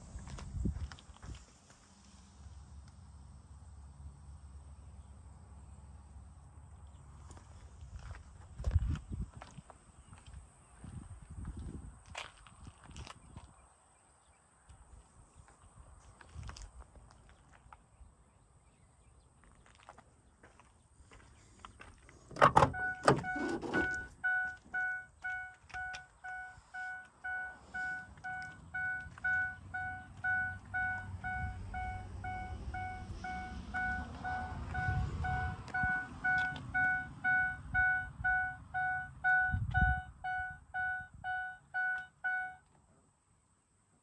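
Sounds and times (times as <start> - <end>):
vehicle door opening: 22.3 - 25.0
door warning chime dinging: 22.4 - 42.6.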